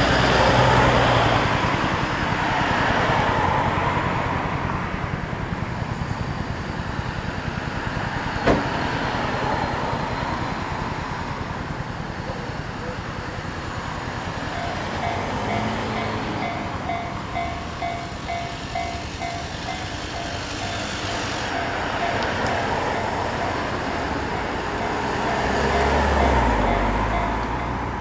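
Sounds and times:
road traffic: 0.0s - 28.0s
level crossing warning bell: 12.2s - 28.0s
car passing close: 14.4s - 28.0s.

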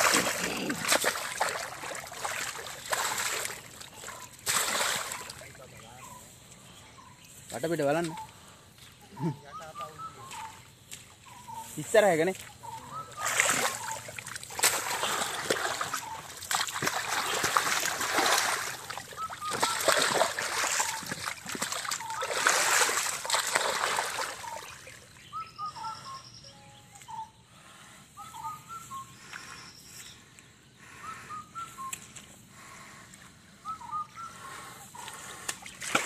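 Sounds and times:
mud splashing and sloshing: 0.0s - 5.5s, 13.1s - 25.1s, 35.0s - 36.0s
birds chirping: 0.0s - 36.0s.

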